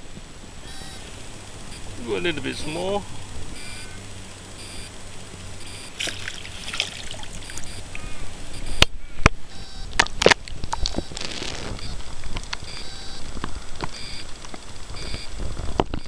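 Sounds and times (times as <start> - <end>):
water splashing against kayak: 6.0 - 7.8.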